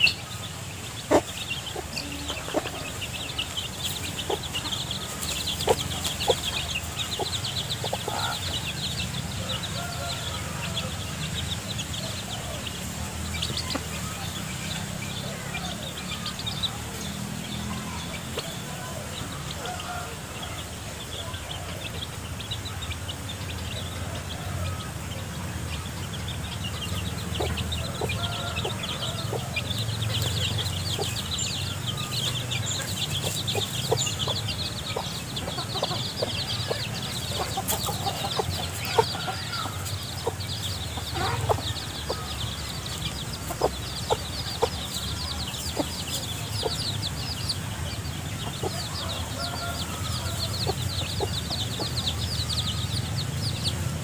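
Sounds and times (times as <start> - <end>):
chicks peeping: 0.0 - 54.0
hen clucking: 0.0 - 54.0
scratching in dry leaves: 36.6 - 40.2.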